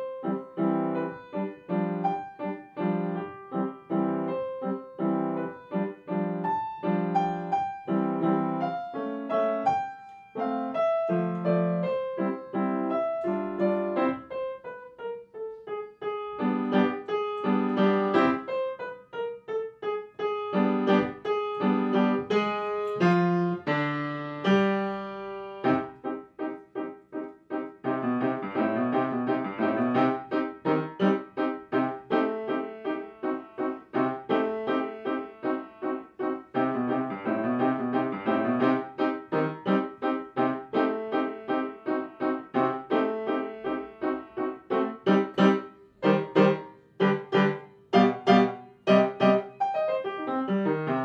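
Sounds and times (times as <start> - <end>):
piano music: 0.0 - 51.0.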